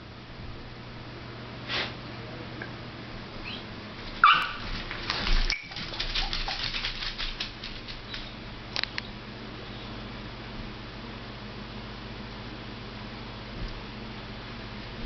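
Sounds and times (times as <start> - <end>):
claws clicking and scuffling: 4.1 - 8.9
dog barking: 4.2 - 4.7.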